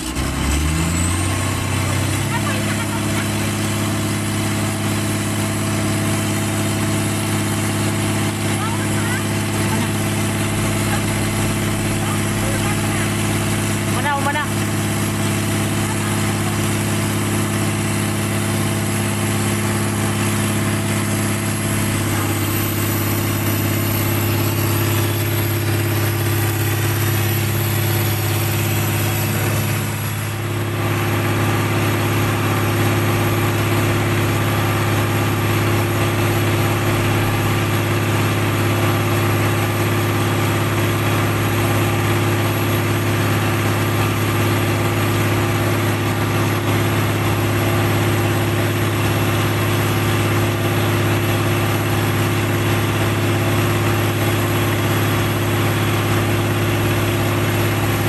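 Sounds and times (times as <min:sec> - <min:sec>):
large diesel engine idling: 0:00.0 - 0:58.0.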